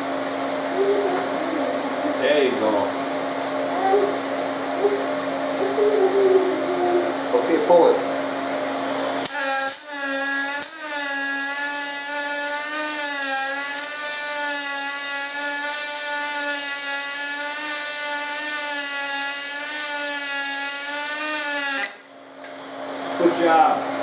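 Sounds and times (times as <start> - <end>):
welding arc hissing buzz: 8.6 - 22.0.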